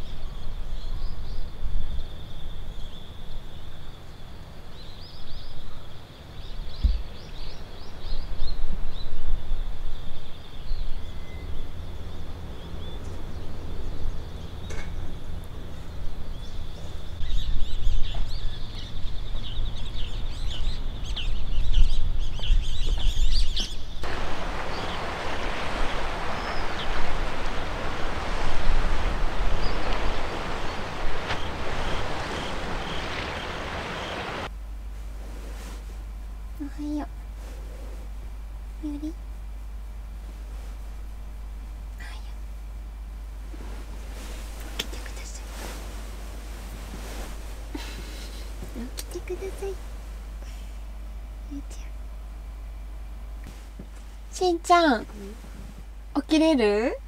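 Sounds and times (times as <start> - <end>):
birds chirping: 0.0 - 34.5, 44.6 - 45.5
wind rumble on microphone: 6.4 - 38.8
sea waves: 24.0 - 34.5, 43.9 - 50.7.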